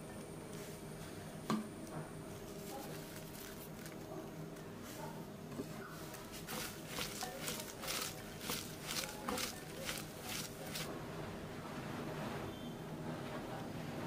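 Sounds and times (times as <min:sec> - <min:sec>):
hands tossing onions rustling: 0:02.4 - 0:04.1, 0:06.0 - 0:10.9.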